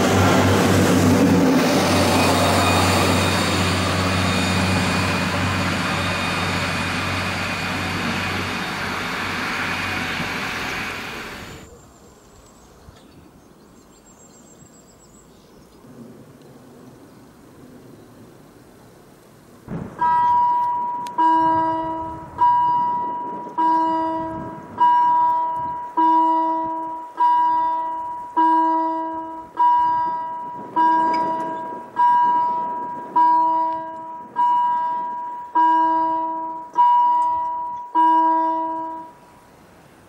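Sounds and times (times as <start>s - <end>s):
level crossing warning bell: 20.0s - 39.2s.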